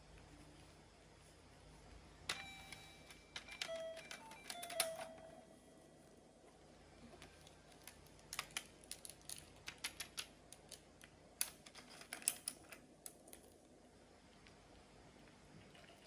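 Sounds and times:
plastic toys clicking: 3.4s - 5.1s, 7.8s - 13.5s.

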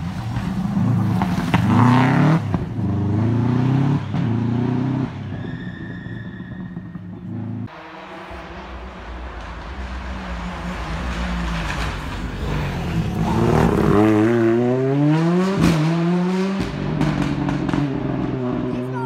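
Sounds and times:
rally car passing at speed: 0.0s - 18.8s.

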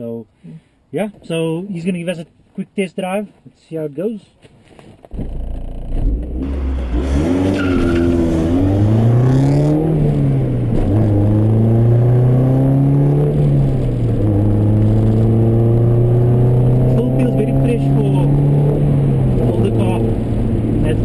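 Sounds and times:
car engine accelerating through gears: 5.2s - 21.0s.

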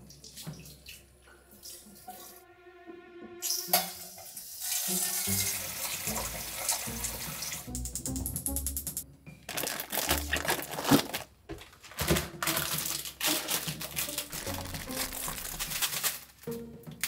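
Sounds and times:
faucet pouring water into pot: 3.4s - 7.7s.

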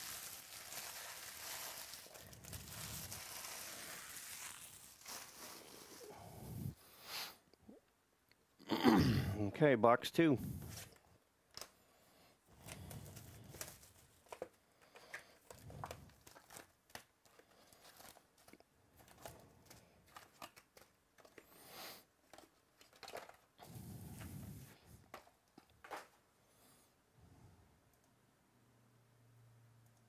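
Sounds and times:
foil packs handled: 0.0s - 6.8s, 12.5s - 26.2s
plastic wrap tearing and crinkling: 0.0s - 6.8s, 12.6s - 21.4s, 22.3s - 24.5s.

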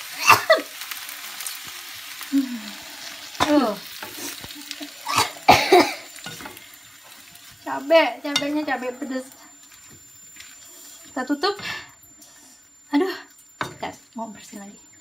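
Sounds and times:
cabbage sizzling in a frying pan: 0.0s - 15.0s
wooden spatula stirring: 6.2s - 11.8s.

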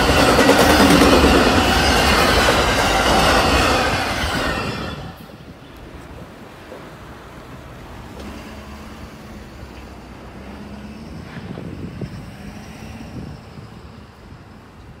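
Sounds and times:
wind noise: 0.0s - 7.0s, 10.4s - 15.0s
train wheels rumbling on rail: 0.0s - 15.0s.

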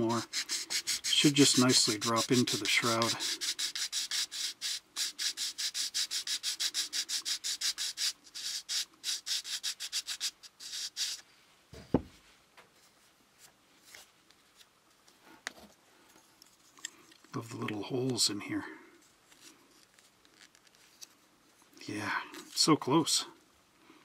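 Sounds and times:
part rubbed on sandpaper: 0.0s - 11.3s.

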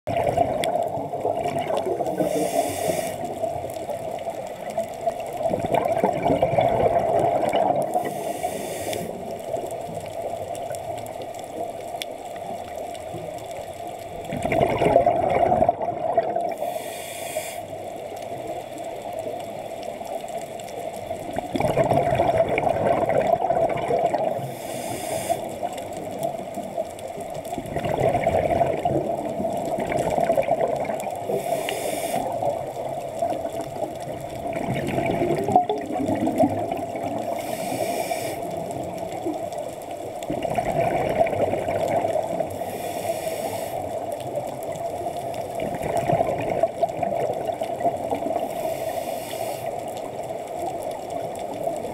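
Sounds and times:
exhaled bubbles gurgling: 0.1s - 51.9s
regulator inhale hiss: 2.1s - 3.5s, 8.0s - 9.4s, 16.6s - 17.9s, 24.4s - 25.7s, 31.3s - 32.6s, 37.2s - 38.6s, 42.6s - 44.0s, 48.4s - 49.9s.

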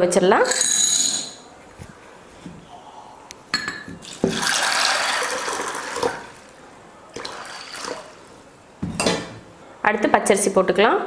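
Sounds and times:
water pouring into a glass bowl: 4.0s - 6.5s.

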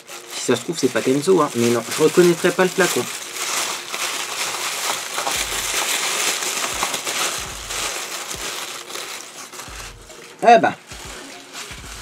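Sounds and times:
wrapping tearing and crumpling: 0.0s - 12.0s.

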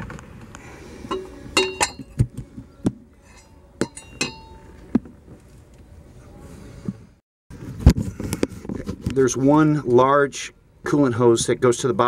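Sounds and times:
metal pulley clinking: 3.3s - 4.7s.

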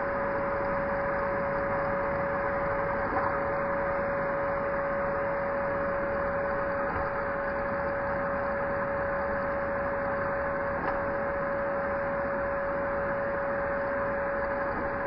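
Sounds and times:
three d printer whine: 0.0s - 15.0s.

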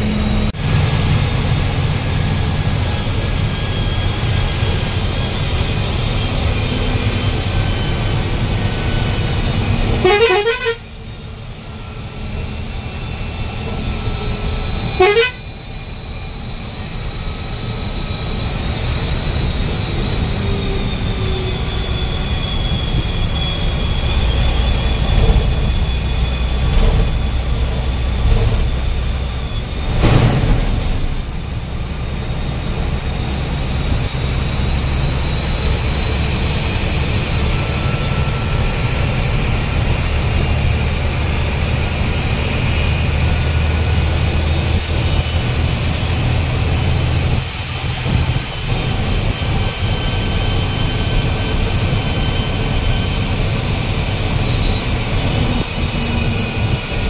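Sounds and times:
vehicle engine and road rumble: 0.0s - 57.0s
short horn toots: 9.9s - 10.9s, 14.9s - 15.5s.

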